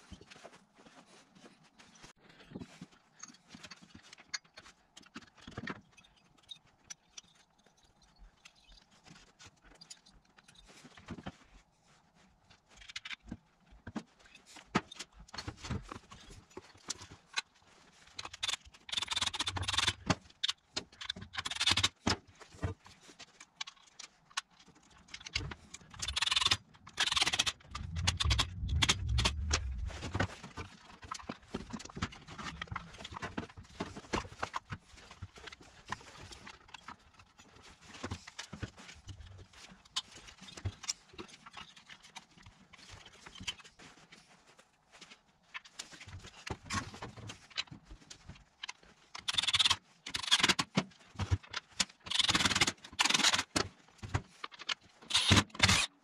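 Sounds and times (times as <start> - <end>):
cordless driver driving screws: 55.1 - 55.9.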